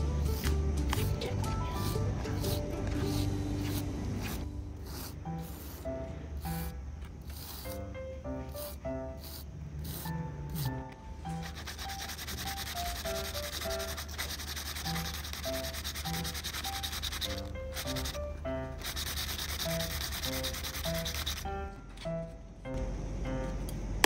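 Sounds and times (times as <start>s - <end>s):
paper rubbing against paper: 0.3s - 22.1s.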